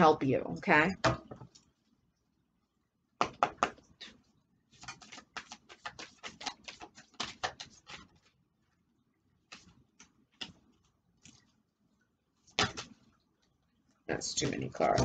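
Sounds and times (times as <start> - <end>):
cards being shuffled: 4.8 - 8.4, 9.4 - 11.5, 12.5 - 13.1.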